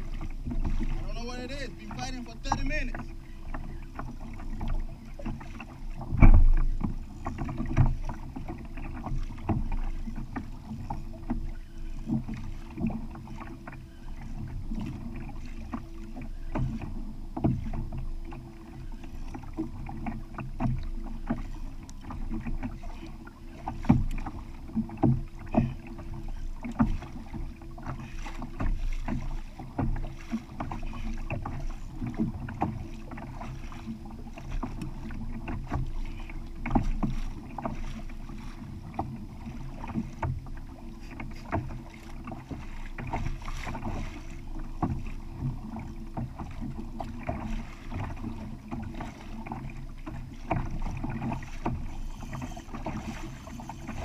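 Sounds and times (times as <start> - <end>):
water slapping against kayak hull: 0.0 - 54.0.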